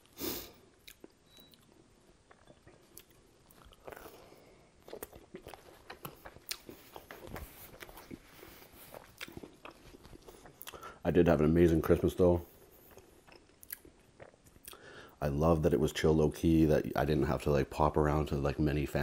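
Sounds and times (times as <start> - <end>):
chewing with wet mouth clicks: 0.8 - 1.7, 2.3 - 10.9, 12.8 - 14.8.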